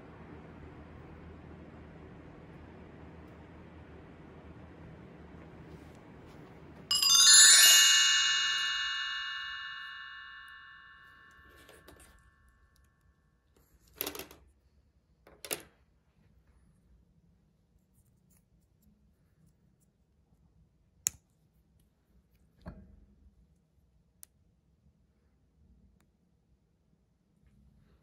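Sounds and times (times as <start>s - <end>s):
bright bell-like chime: 6.9s - 12.0s.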